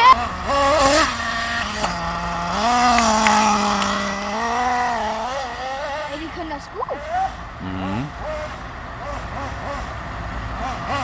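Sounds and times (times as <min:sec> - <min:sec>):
toy car motor revving: 0:00.0 - 0:11.0.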